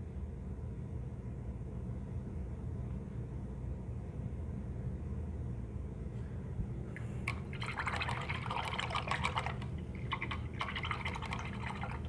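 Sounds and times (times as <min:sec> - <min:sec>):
low background hum: 0:00.0 - 0:12.0
paintbrush rinsed in water: 0:07.3 - 0:12.0
splashing and dripping water: 0:07.3 - 0:12.0.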